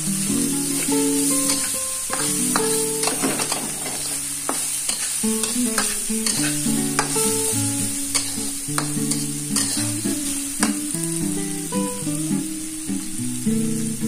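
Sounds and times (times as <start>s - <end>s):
light sizzle: 0.0s - 14.0s
plucked guitar music: 0.0s - 14.0s
metal spatula scraping wok: 0.7s - 10.8s.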